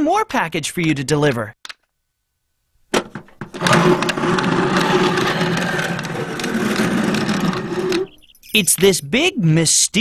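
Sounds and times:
box scraping along ground: 3.6s - 8.2s.

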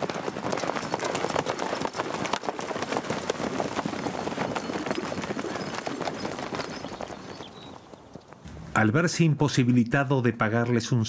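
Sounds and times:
horse hooves on dirt: 0.0s - 8.8s.

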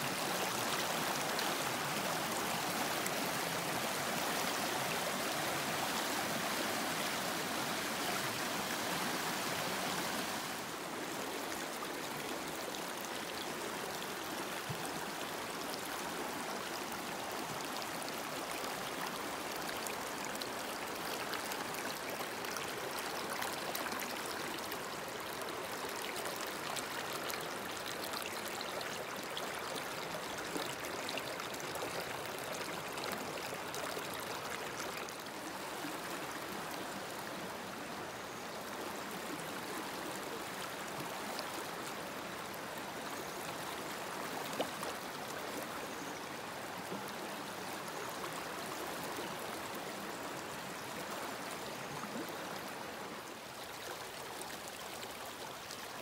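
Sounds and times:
river water rushing: 0.0s - 38.2s.

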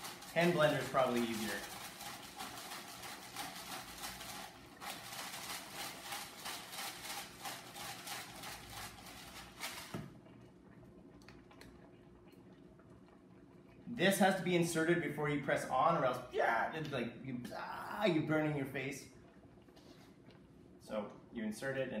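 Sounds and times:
pepper mill grinding: 0.0s - 10.0s.

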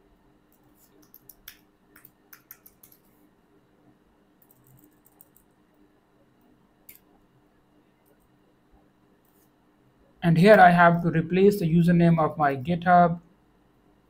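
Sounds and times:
keyboard typing: 0.5s - 3.1s, 4.4s - 5.6s.

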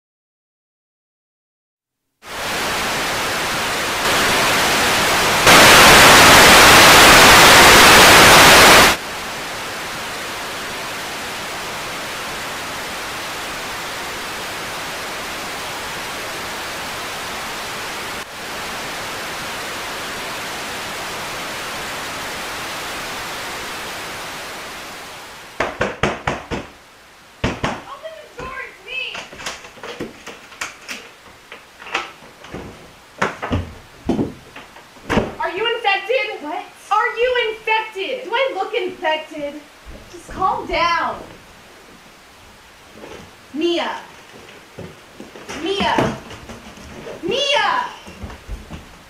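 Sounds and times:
static hiss: 2.2s - 49.0s
knocking on a door: 25.6s - 26.7s, 27.4s - 27.8s.

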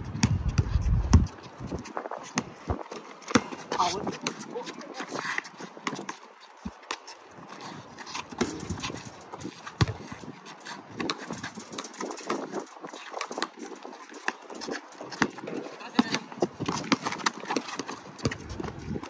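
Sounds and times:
basketball bouncing on concrete: 0.0s - 5.1s, 8.3s - 10.2s, 14.2s - 19.0s.

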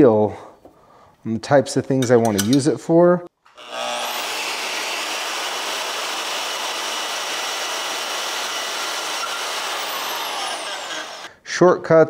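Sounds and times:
bandsaw cutting steel: 3.5s - 11.3s.

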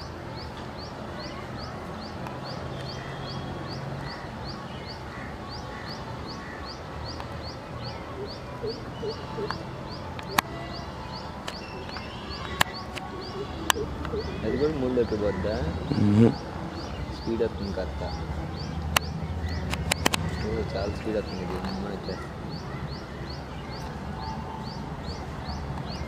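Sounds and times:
sharp clicks: 18.9s - 20.3s.

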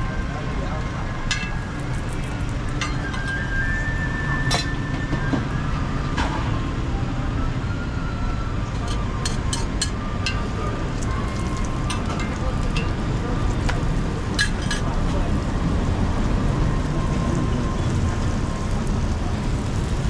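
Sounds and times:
street traffic rumble: 0.0s - 20.0s.

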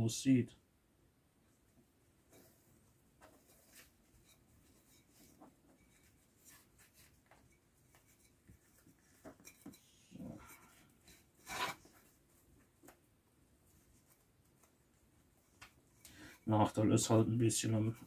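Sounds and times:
cord scraping: 8.0s - 12.1s.

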